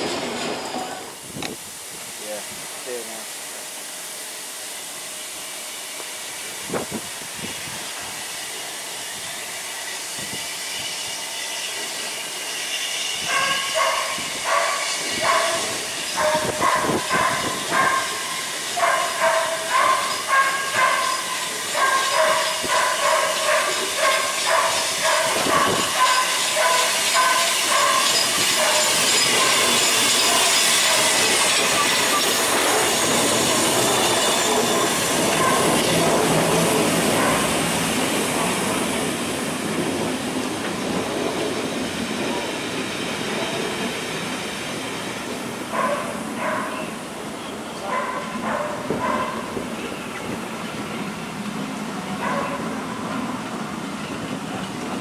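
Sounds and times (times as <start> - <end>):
steam train hissing: 0.0 - 55.0
pulsing wheel squeal: 9.0 - 38.3
train wheels clattering: 12.7 - 44.8.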